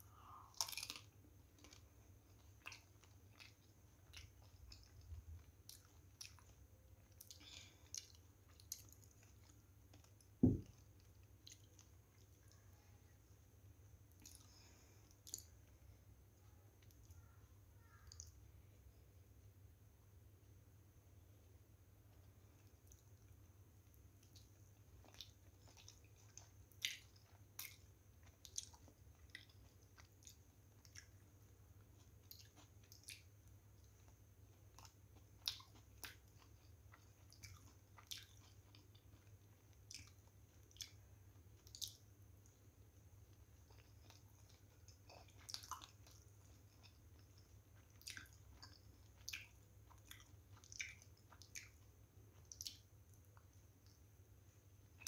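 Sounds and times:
faint low hum: 0.0s - 55.0s
wet chewing smacks: 24.2s - 42.0s, 43.3s - 54.0s.

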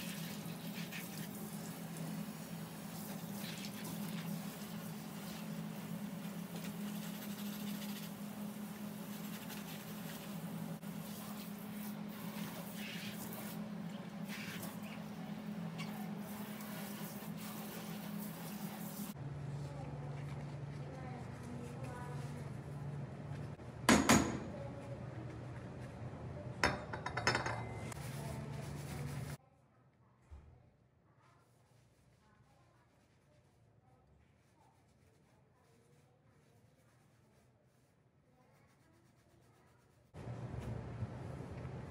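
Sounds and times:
sponge squeezed and scrubbed: 0.0s - 22.7s, 31.4s - 40.1s.

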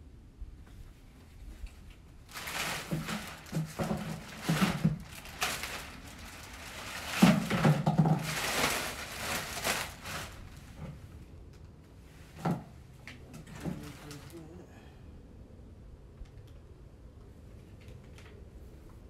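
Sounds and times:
plastic wrap crinkling: 2.2s - 10.9s.

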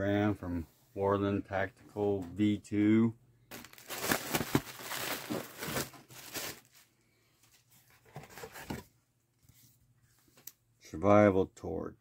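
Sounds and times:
handling noise from box: 3.5s - 6.7s, 7.8s - 8.9s
plastic bag crinkling: 3.5s - 6.8s.

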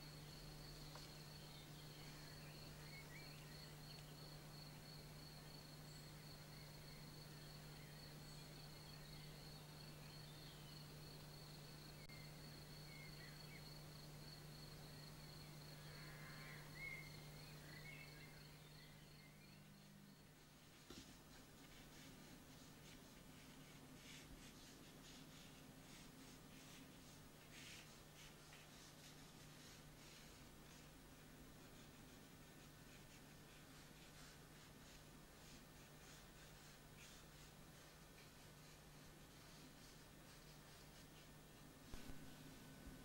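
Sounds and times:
faint bird chirps: 0.0s - 31.0s
low steady hum: 0.0s - 43.0s.

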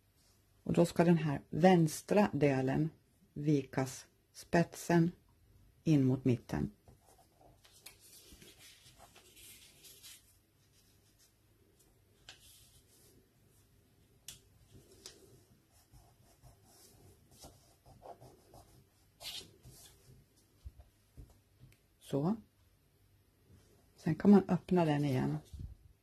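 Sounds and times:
paper rustling being folded: 7.0s - 13.2s.

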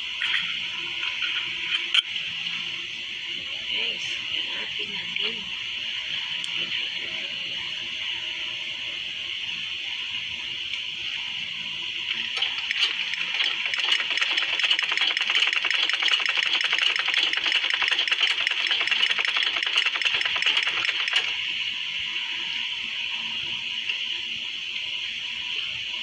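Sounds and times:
sewing machine stitching: 12.4s - 21.4s.

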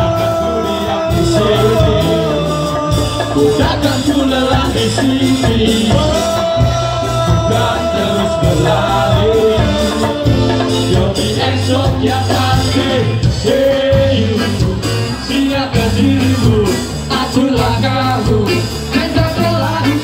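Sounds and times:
ska band playing live: 0.0s - 20.0s.

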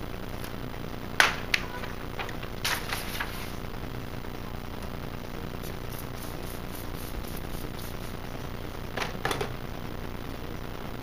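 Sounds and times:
steady background hiss: 0.0s - 11.0s
papery rustles: 1.5s - 3.6s.

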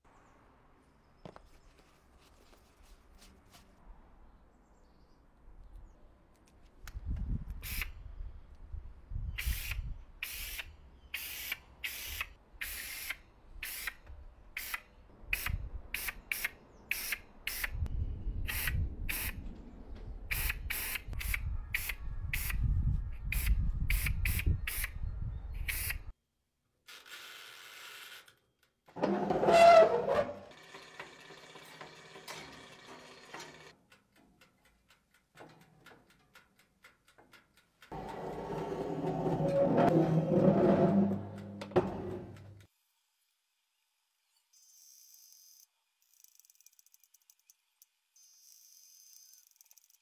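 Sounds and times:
spray nozzle hissing bursts: 7.6s - 7.9s, 9.4s - 14.0s.

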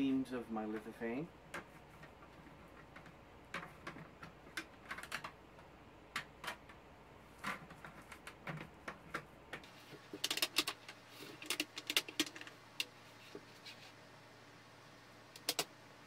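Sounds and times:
plastic parts clicking together: 1.5s - 6.8s, 7.4s - 12.9s, 15.4s - 15.7s.

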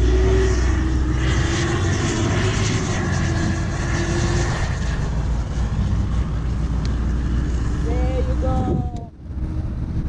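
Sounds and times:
drone propeller whine: 0.0s - 10.0s
low wind rumble: 0.0s - 10.0s.

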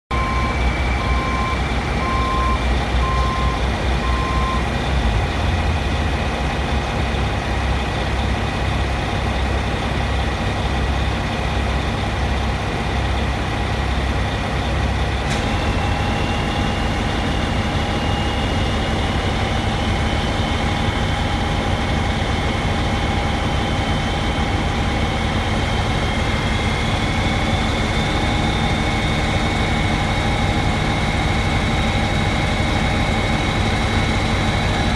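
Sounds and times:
backup alarm beeping: 0.1s - 4.7s
crane engine running: 0.1s - 34.9s.

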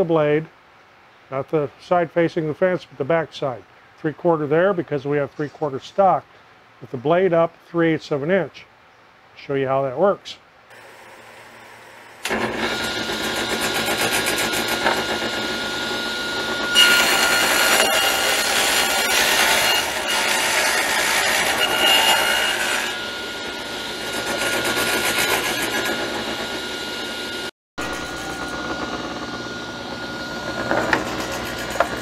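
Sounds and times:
table saw cutting wood: 10.7s - 32.0s.

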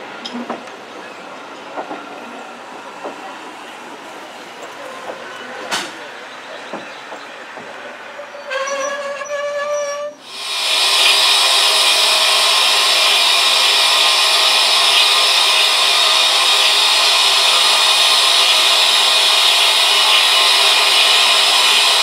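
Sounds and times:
steam locomotive releasing steam: 8.2s - 22.0s.

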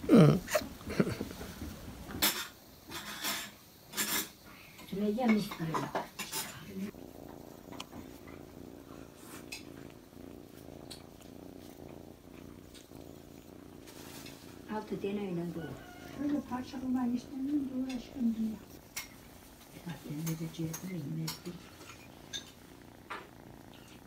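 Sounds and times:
kitten purring: 0.0s - 24.0s.

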